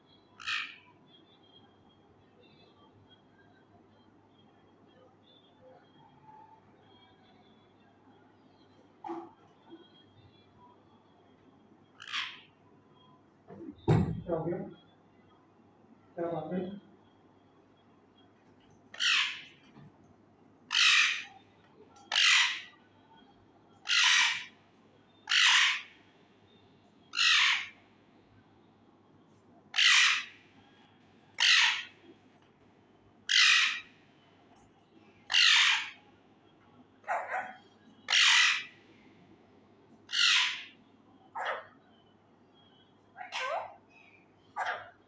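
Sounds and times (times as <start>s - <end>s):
parakeet screeching: 0.4s - 0.8s, 12.0s - 12.5s, 19.0s - 19.6s, 20.7s - 21.4s, 22.1s - 22.8s, 23.8s - 24.6s, 25.2s - 26.0s, 27.1s - 27.8s, 29.7s - 30.4s, 31.4s - 32.0s, 33.3s - 33.9s, 35.3s - 36.0s, 37.1s - 38.8s, 40.1s - 40.8s, 43.2s - 43.8s, 44.6s - 45.0s.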